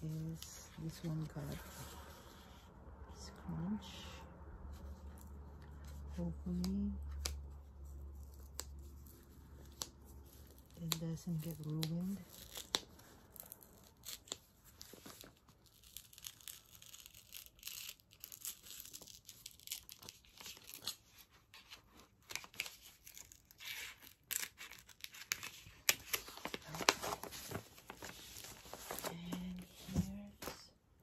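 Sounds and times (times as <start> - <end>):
paper rustling: 19.8 - 30.7.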